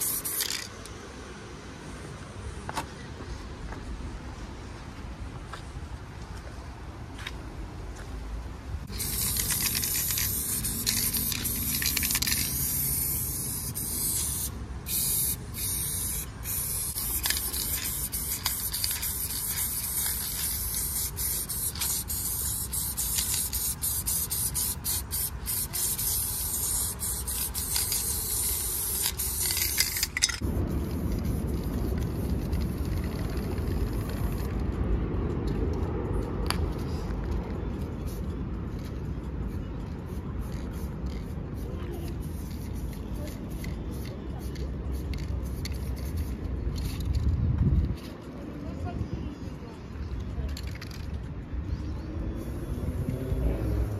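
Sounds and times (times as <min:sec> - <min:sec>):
spray paint can hissing: 0:00.0 - 0:00.9, 0:08.8 - 0:34.7, 0:37.8 - 0:47.4, 0:50.5 - 0:51.2.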